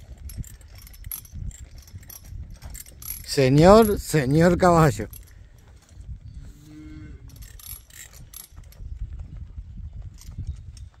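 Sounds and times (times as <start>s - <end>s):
wind rumble on microphone: 0.0s - 11.0s
cow mooing: 6.5s - 7.4s.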